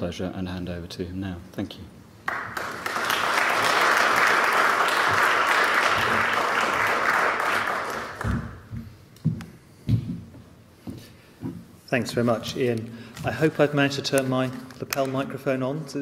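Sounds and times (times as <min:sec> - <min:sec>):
audience applauding: 0:02.2 - 0:08.7.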